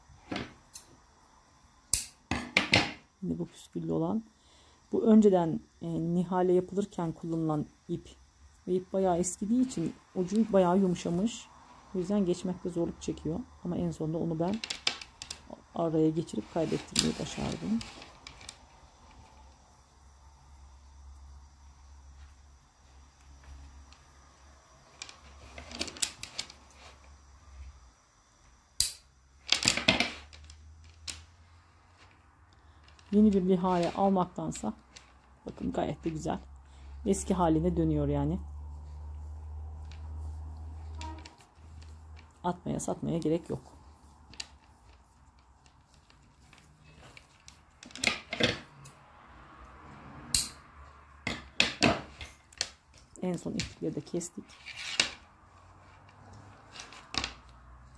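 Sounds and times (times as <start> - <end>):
wooden tiles clicking and clattering: 14.5 - 15.4, 56.7 - 57.6.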